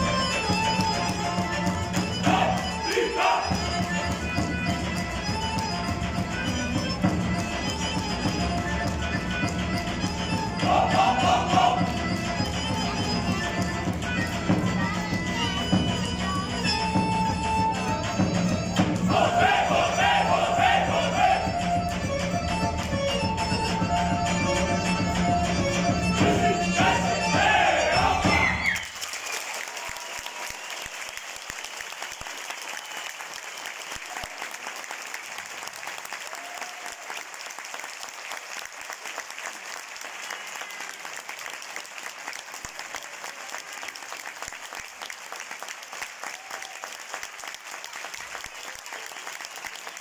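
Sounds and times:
folk band playing: 0:00.0 - 0:28.8
audience applauding: 0:19.1 - 0:21.6, 0:26.8 - 0:50.0.

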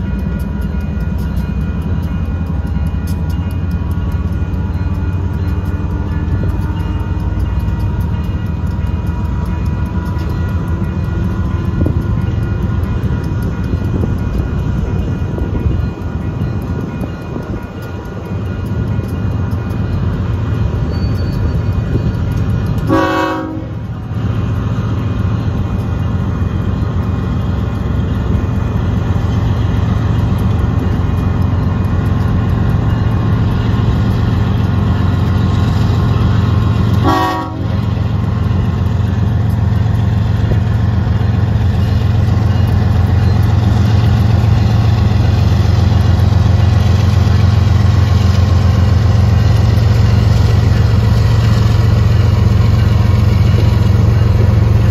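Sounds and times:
diesel locomotive rumble: 0:00.0 - 0:54.9
train horn: 0:22.9 - 0:23.8, 0:36.9 - 0:37.9.

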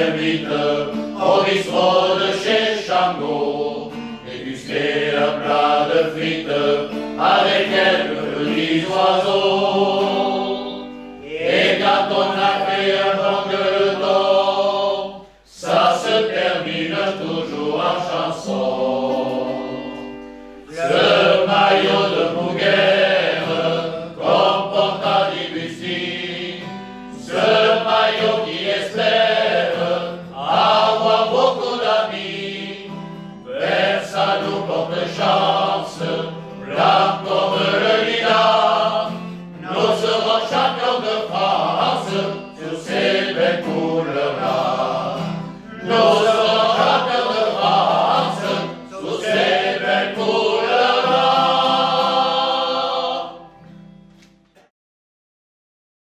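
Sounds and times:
men's choir singing a hymn: 0:00.0 - 0:53.6
acoustic guitar: 0:00.0 - 0:54.7.

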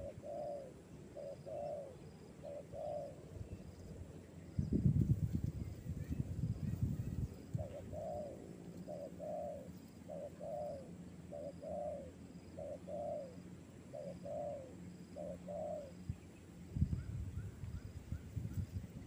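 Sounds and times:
dove cooing: 0:00.0 - 0:03.4, 0:06.1 - 0:16.1.

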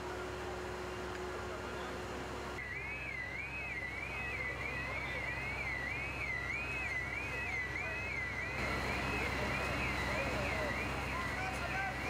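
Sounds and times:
siren yelping: 0:02.6 - 0:12.0.

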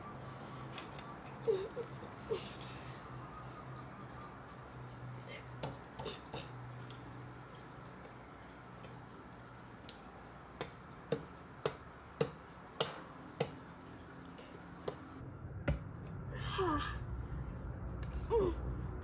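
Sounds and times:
meat cleaver chopping on wood: 0:10.6 - 0:13.6.

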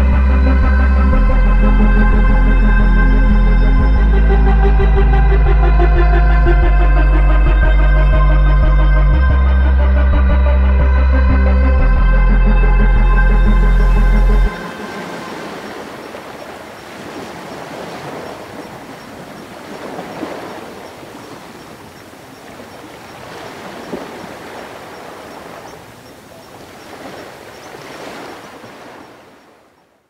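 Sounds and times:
music track: 0:00.0 - 0:16.2
ocean waves washing in: 0:13.3 - 0:29.8.

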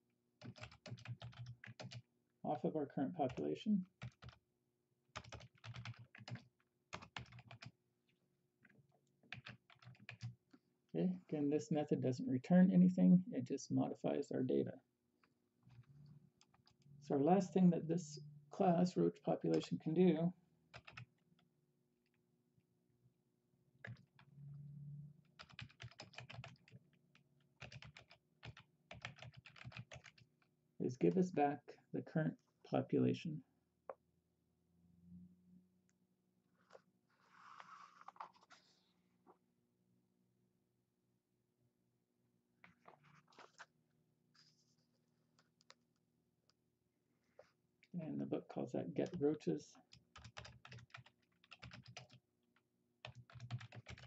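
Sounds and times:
typing on computer keyboard: 0:00.4 - 0:02.0, 0:04.0 - 0:04.4, 0:05.2 - 0:07.7, 0:09.3 - 0:10.4, 0:20.7 - 0:21.1, 0:23.8 - 0:24.3, 0:25.4 - 0:26.8, 0:27.6 - 0:30.3, 0:49.9 - 0:52.2, 0:53.0 - 0:54.0.

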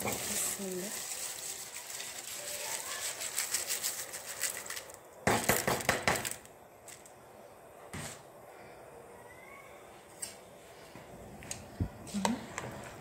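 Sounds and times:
rice poured into boiling water: 0:00.0 - 0:05.1.

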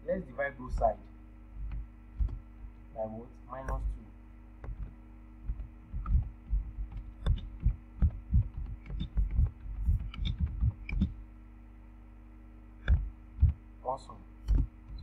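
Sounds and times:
low hum: 0:00.0 - 0:15.0
typing on computer keyboard: 0:06.9 - 0:11.1.

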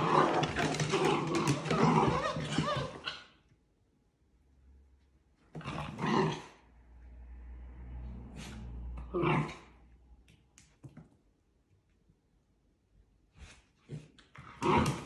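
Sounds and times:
dog growling: 0:00.0 - 0:03.1, 0:09.0 - 0:09.8.

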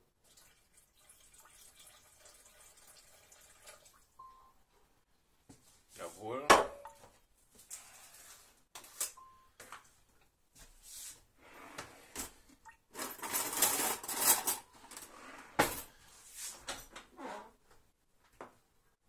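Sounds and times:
containers and utensils clinking: 0:12.2 - 0:15.0.

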